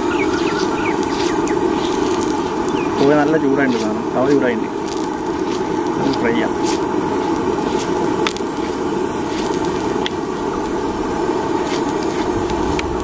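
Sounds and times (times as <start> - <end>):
gas burner running steadily: 0.0 - 13.0
hot oil crackling on griddle: 0.0 - 13.0.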